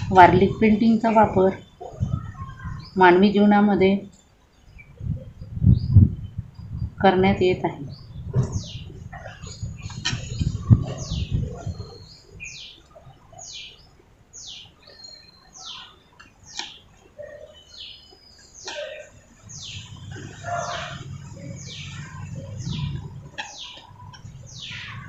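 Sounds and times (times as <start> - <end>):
low rumble: 19.4 - 25.0.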